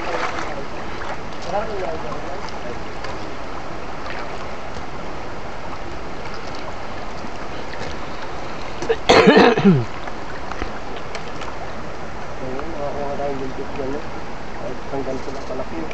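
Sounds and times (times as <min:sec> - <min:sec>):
rocky stream running: 0:00.0 - 0:15.9
person clearing throat: 0:08.8 - 0:09.9.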